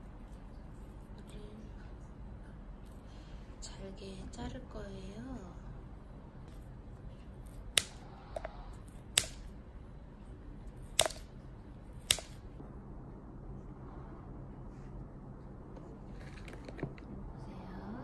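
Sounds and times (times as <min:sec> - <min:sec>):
scissors snipping dog treats: 0:10.9 - 0:11.2.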